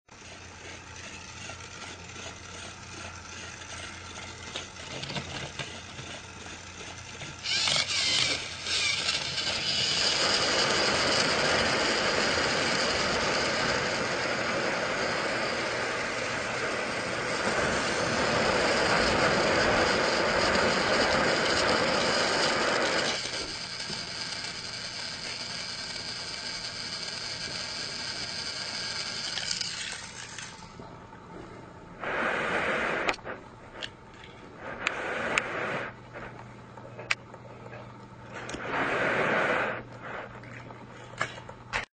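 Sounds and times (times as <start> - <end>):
toy train motors whirring: 0.1 - 30.8
toy train clattering on track: 1.0 - 10.5, 23.0 - 30.6.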